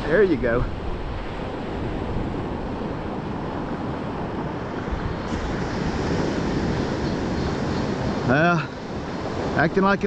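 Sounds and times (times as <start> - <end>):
ocean surf washing: 0.0 - 10.0
wind buffeting microphone: 0.0 - 10.0.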